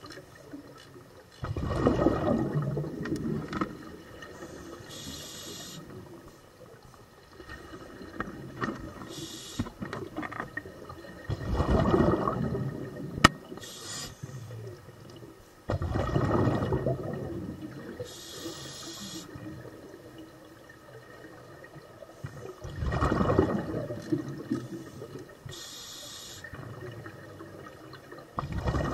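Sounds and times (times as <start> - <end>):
exhaled bubbles underwater: 1.4 - 28.9
faint hisses: 4.2 - 7.1, 9.0 - 9.8, 13.5 - 14.8, 17.9 - 19.5, 24.6 - 26.5.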